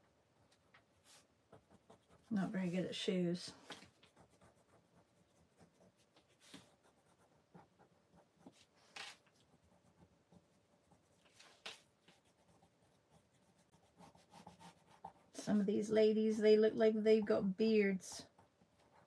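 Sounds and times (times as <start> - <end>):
pencil scratching on paper: 1.0 - 3.1, 3.7 - 15.8, 18.2 - 19.0.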